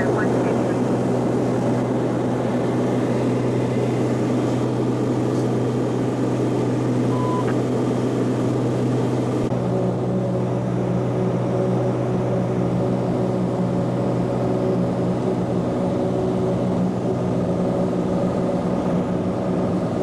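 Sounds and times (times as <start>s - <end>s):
propeller plane cabin drone: 0.0s - 20.0s
faint beep: 7.1s - 7.6s.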